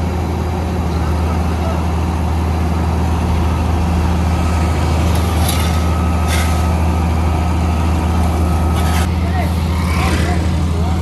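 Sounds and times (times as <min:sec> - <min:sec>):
diesel engine droning: 0:00.0 - 0:11.0.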